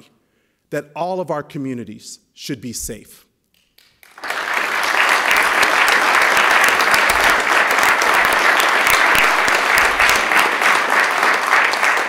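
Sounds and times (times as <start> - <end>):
crowd applauding: 3.8 - 12.0.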